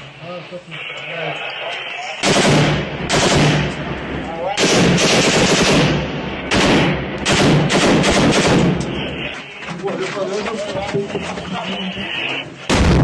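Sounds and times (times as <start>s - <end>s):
automatic rifle fire: 2.2s - 3.8s, 4.6s - 8.9s, 12.7s - 13.0s.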